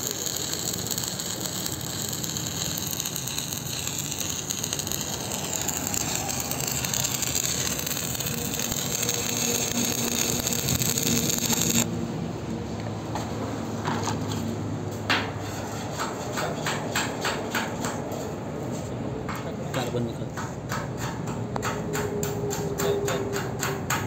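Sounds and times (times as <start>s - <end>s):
welding arc crackling: 0.0s - 11.9s.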